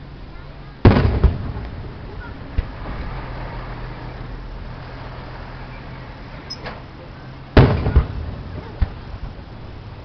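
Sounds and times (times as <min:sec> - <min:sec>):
low background noise: 0:00.0 - 0:10.0
firework bang: 0:00.8 - 0:04.2, 0:07.6 - 0:09.4.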